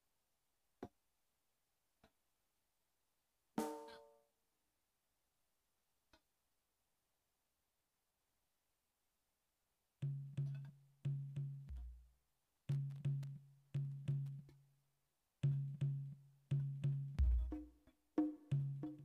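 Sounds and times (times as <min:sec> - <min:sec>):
pitched drum strokes: 0:17.2 - 0:19.0.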